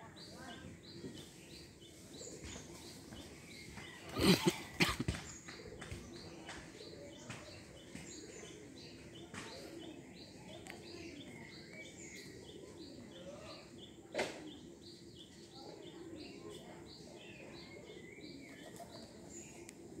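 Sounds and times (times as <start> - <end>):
pigeons cooing: 3.9 - 16.4, 17.2 - 20.0.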